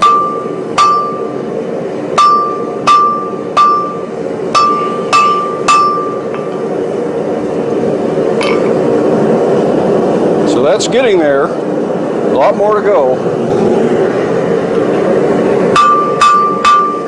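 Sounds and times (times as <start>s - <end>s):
hammer striking steel on anvil: 0.0s - 1.4s, 2.2s - 6.5s, 15.7s - 17.0s
steady low hum: 0.0s - 17.0s.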